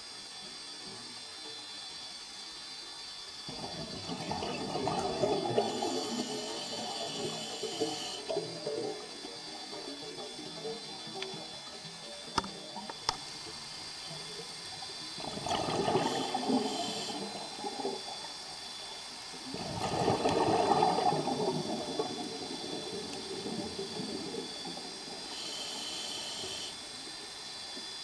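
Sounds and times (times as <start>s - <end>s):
underwater breath bubbling: 3.5s - 11.6s, 15.2s - 18.8s, 19.4s - 26.8s.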